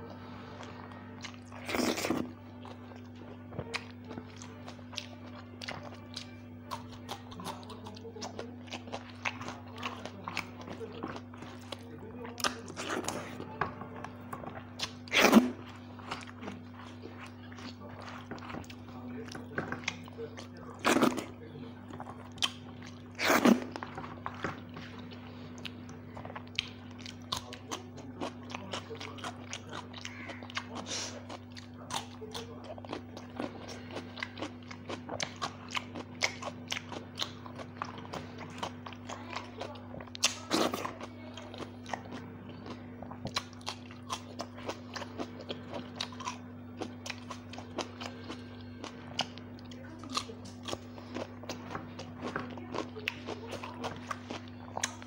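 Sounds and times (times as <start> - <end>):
steady low hum: 0.0 - 55.0
person chewing and lip-smacking: 0.6 - 21.3, 21.9 - 55.0.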